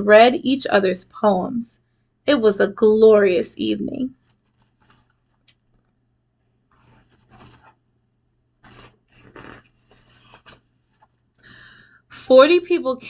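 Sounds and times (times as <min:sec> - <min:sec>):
book pages turning: 0:04.2 - 0:06.0, 0:06.7 - 0:07.8, 0:08.6 - 0:11.3.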